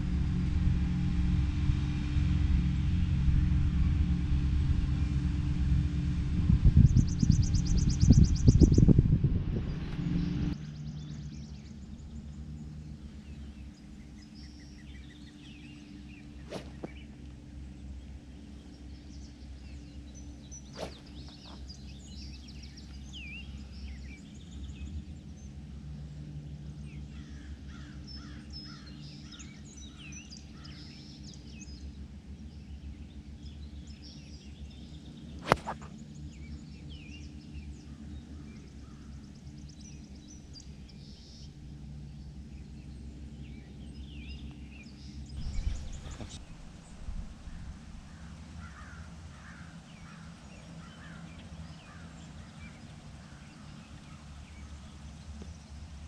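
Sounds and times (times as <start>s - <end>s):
low outdoor hum: 0.0s - 56.0s
birds chirping: 13.0s - 24.6s, 43.8s - 55.8s
golf club striking ball: 16.4s - 17.2s, 20.8s - 21.6s, 35.4s - 36.0s, 45.4s - 48.2s.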